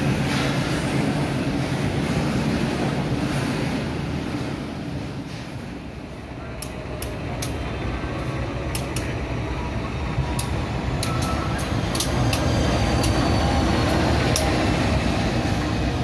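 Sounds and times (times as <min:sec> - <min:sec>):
wheels clicking on track: 0:10.2 - 0:14.8.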